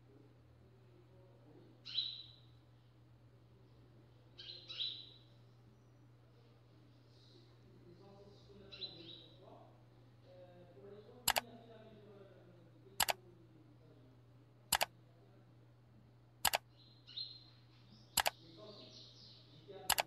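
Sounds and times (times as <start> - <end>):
faint steady hum: 0.0 - 20.0
bird chirp: 1.8 - 2.6, 4.4 - 6.0, 8.6 - 9.5, 16.5 - 20.0
sharp double clicks: 14.7 - 14.9, 16.4 - 16.6, 18.2 - 18.4.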